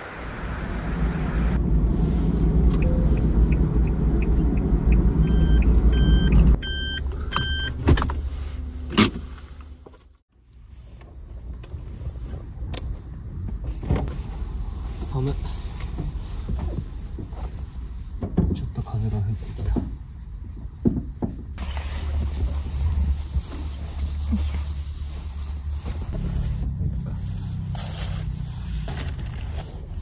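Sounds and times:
van engine running: 0.0 - 30.0
short beeps: 2.8 - 3.6, 5.2 - 7.8.

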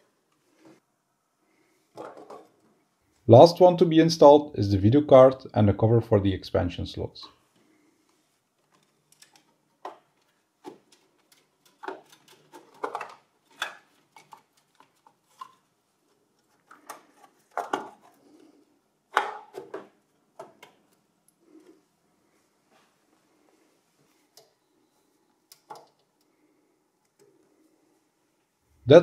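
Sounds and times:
computer parts clicking and rattling: 8.7 - 15.7.

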